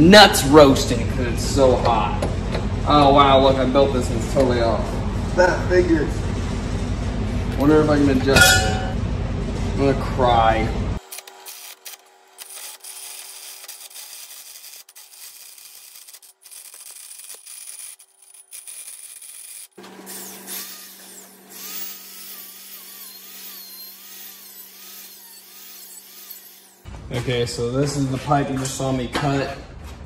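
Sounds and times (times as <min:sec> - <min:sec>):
drill press motor hum: 0:11.0 - 0:26.9
rotary tool grinding metal: 0:11.0 - 0:26.9
hole saw scraping steel: 0:11.2 - 0:26.9.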